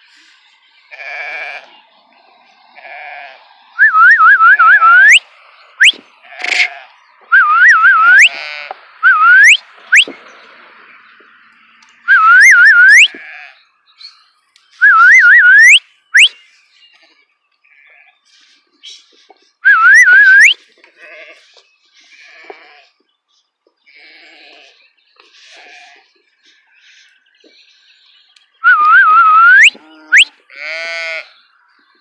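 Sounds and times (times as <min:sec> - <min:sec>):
sheep bleating: 0:00.9 - 0:01.8, 0:02.8 - 0:03.5, 0:06.2 - 0:07.0, 0:08.0 - 0:08.8, 0:12.7 - 0:13.7, 0:21.0 - 0:21.5, 0:22.1 - 0:23.0, 0:23.9 - 0:24.8, 0:25.4 - 0:26.1, 0:29.7 - 0:31.4
person whistling: 0:03.8 - 0:05.2, 0:07.3 - 0:08.3, 0:09.0 - 0:10.1, 0:12.1 - 0:13.2, 0:14.8 - 0:16.4, 0:19.6 - 0:20.6, 0:28.6 - 0:30.3.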